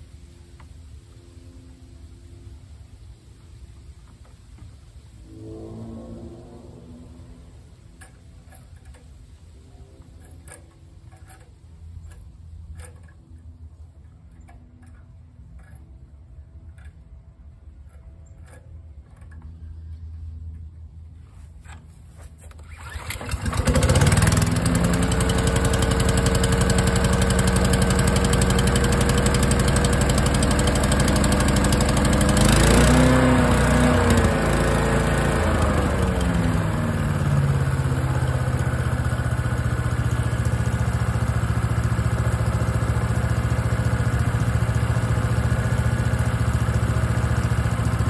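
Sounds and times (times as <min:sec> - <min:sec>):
small gas engine running: 0:05.3 - 0:13.4, 0:22.4 - 0:48.0.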